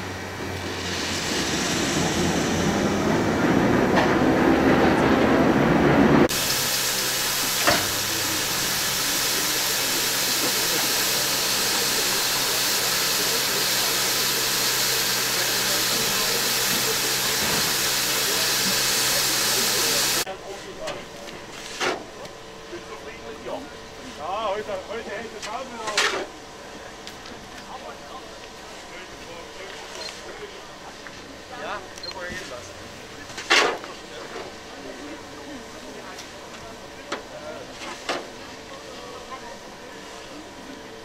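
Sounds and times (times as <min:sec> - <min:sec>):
steam locomotive rumbling: 0:00.0 - 0:20.3
loud hiss of steam: 0:00.6 - 0:03.4, 0:06.3 - 0:20.3.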